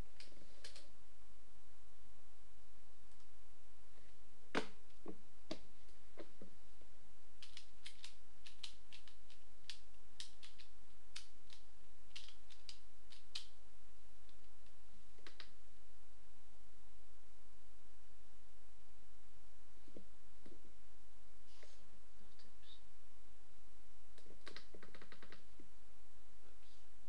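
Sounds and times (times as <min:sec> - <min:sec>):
plastic puzzle pieces clicking: 0:07.4 - 0:13.5.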